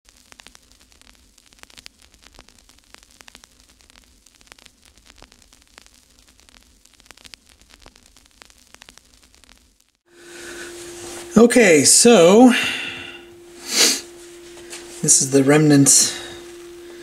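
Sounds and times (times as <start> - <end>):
crackling static: 0.0 - 17.0
steady low hum: 0.1 - 17.0.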